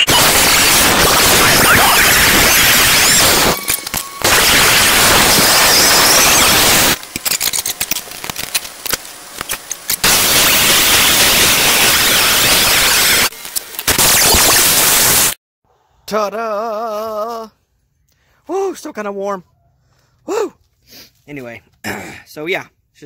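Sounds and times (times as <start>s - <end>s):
angle grinder cutting steel: 0.0s - 15.3s.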